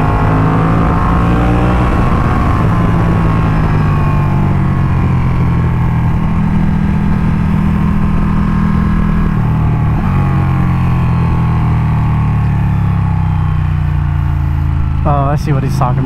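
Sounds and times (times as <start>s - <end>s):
wind rush over microphone: 0.0s - 11.8s
motorcycle engine pulling hard: 0.0s - 16.0s.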